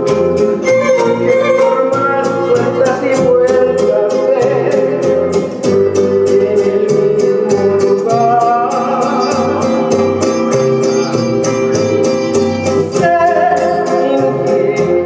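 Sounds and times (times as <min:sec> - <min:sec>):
strummed instrumental accompaniment: 0:00.0 - 0:15.0
woman singing: 0:01.2 - 0:05.4, 0:06.1 - 0:10.1, 0:12.8 - 0:15.0.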